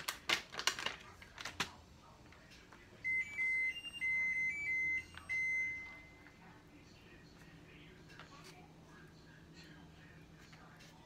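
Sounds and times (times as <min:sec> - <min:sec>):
plastic bag crinkling: 0:00.0 - 0:01.8.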